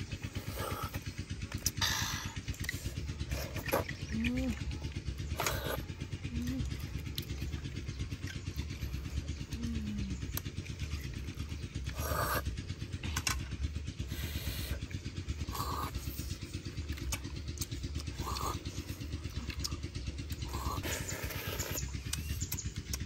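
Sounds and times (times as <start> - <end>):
small engine running: 0.0 - 23.0
sucking sounds of eating: 14.0 - 22.5.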